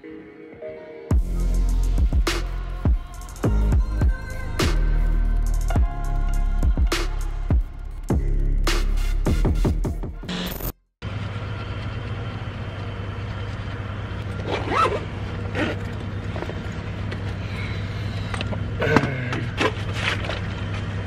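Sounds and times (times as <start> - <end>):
vehicle engine humming: 11.0 - 21.0.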